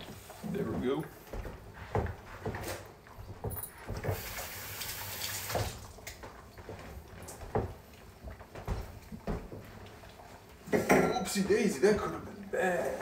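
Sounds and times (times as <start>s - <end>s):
kitchen items knocking and clunking: 0.0s - 4.3s, 10.6s - 12.2s.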